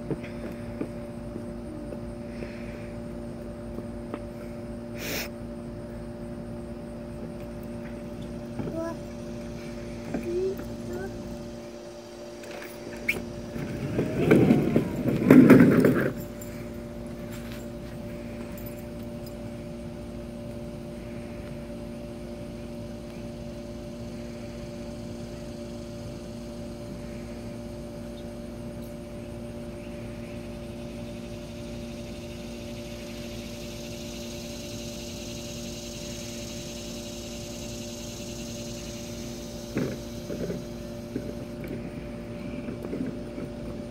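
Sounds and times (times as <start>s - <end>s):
steady hum: 0.0s - 43.9s
toy train rumbling on plastic track: 13.5s - 16.4s.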